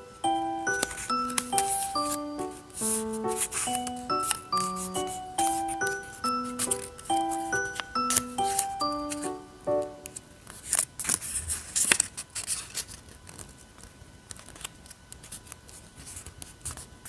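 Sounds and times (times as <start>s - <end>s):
paper rustling and crackling: 0.7s - 9.2s, 10.0s - 17.0s
paper rubbing: 0.8s - 3.8s.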